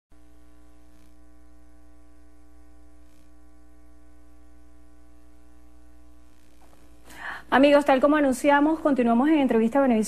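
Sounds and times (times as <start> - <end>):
electrical hum: 0.1 - 10.0.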